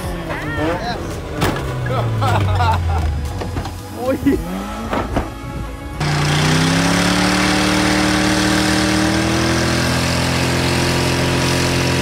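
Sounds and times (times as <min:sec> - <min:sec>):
engine at high revs: 0:04.2 - 0:12.0.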